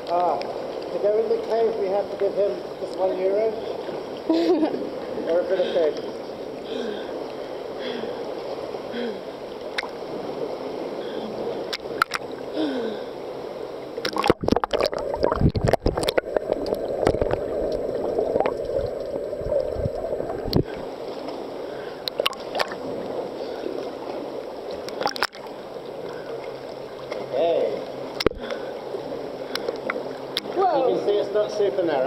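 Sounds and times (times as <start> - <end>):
seawater gurgling and sloshing: 0.0 - 32.0
splashes and knocks: 11.7 - 12.3, 14.0 - 18.9, 22.1 - 23.0, 24.9 - 25.5.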